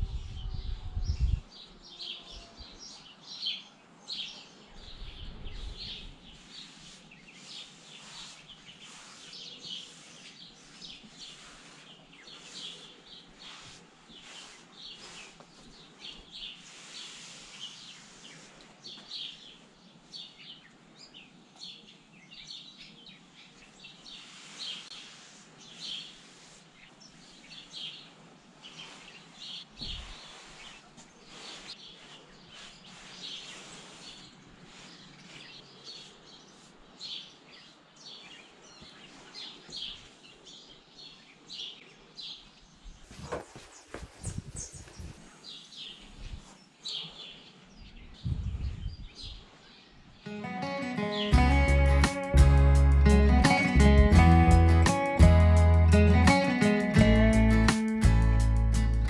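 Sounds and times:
small birds chirping: 0.3s - 52.4s
towel rubbing horse's coat: 5.5s - 20.5s, 23.6s - 37.6s, 38.6s - 40.6s, 43.1s - 47.3s.

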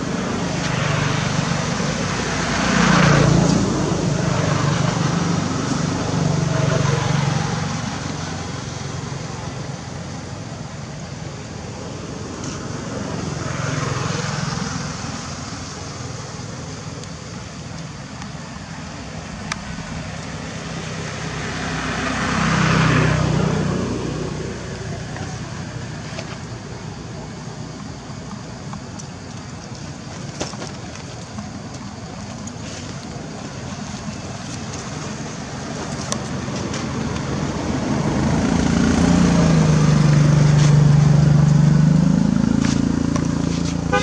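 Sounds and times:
vehicles passing: 0.0s - 44.0s.

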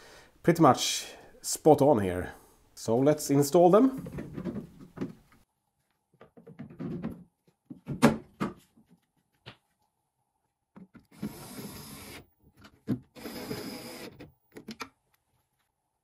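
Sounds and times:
cordless drill running: 11.2s - 12.3s, 13.2s - 14.3s.

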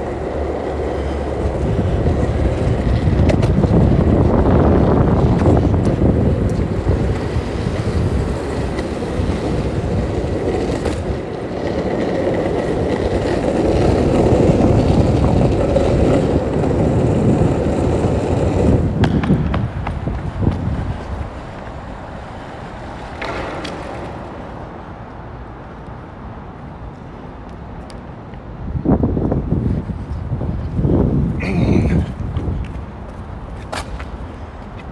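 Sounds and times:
skateboard clicks over joints: 0.0s - 25.2s
skateboard wheels rolling on pavement: 0.0s - 34.9s.

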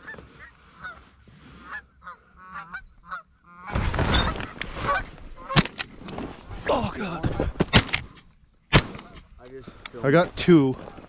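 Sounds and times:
geese honking: 0.0s - 5.7s
shotgun shot: 8.7s - 9.2s.

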